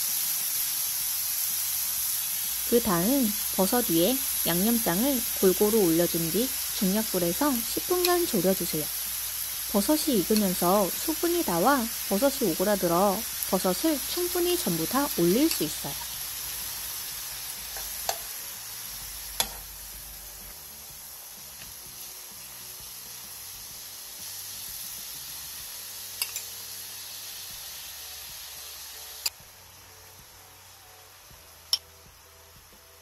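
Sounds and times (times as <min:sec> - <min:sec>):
food sizzling in a frying pan: 0:00.0 - 0:33.0
metal spoon clinking on pan: 0:19.4 - 0:19.6, 0:26.2 - 0:26.5.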